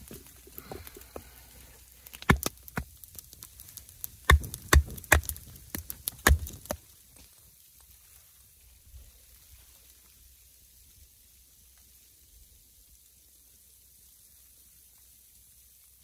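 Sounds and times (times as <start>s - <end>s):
sharp knocks and snaps: 2.0s - 6.8s.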